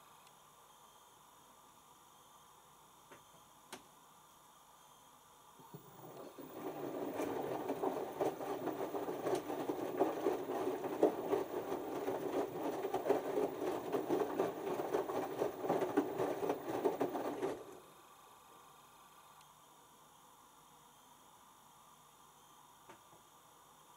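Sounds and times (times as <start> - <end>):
washing machine drum tumbling laundry: 5.7 - 17.9.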